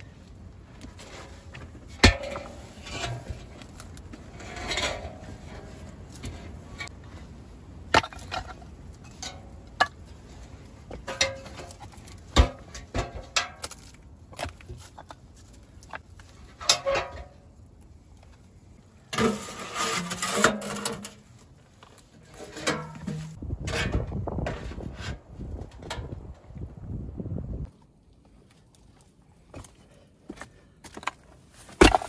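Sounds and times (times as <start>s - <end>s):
metal scraping and rattling: 0.9s - 7.2s, 19.1s - 26.1s.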